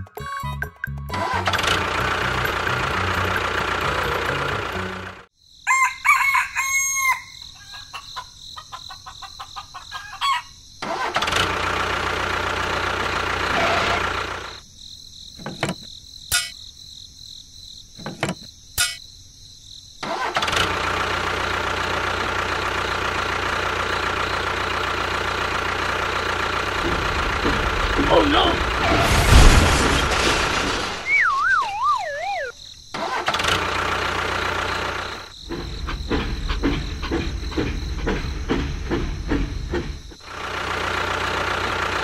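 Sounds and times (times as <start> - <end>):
tractor engine running: 0.9 - 5.3, 10.8 - 14.6, 20.0 - 31.1, 32.9 - 42.0
rooster crowing: 5.6 - 8.2.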